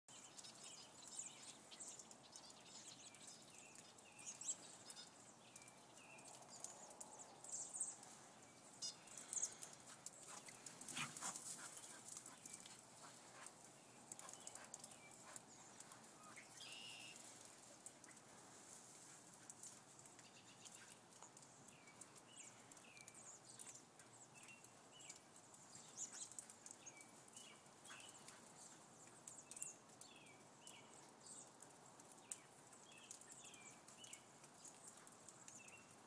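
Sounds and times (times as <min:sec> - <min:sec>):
dog paws running through snow: 0:09.8 - 0:13.7.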